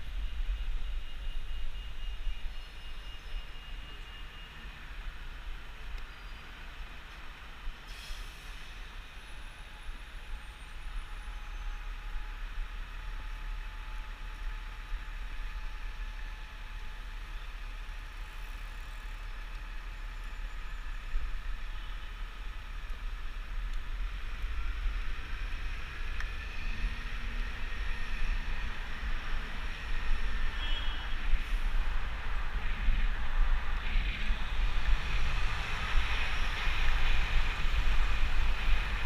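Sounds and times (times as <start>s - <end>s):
city traffic hiss: 0.0s - 39.0s
wind rumbling on microphone: 19.3s - 39.0s.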